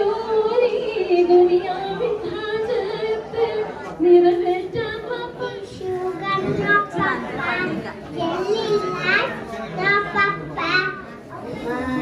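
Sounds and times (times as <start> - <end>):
woman singing into microphone: 0.0 - 7.1.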